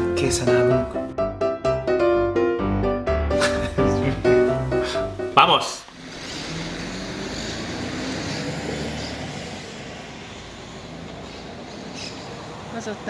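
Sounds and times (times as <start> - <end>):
vehicle passing: 3.4 - 13.0
steady traffic hum: 3.7 - 13.0.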